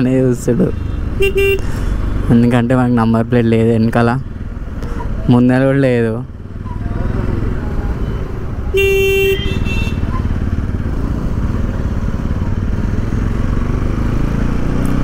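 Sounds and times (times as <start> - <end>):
motorcycle engine low rumble: 0.0 - 15.0
vehicle horn honk: 1.2 - 1.7, 8.7 - 10.1.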